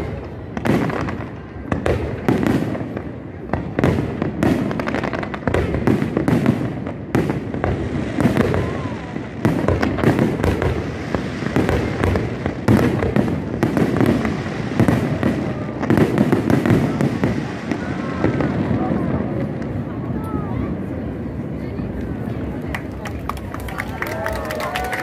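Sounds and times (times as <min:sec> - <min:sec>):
fireworks bursting: 0:00.0 - 0:23.5.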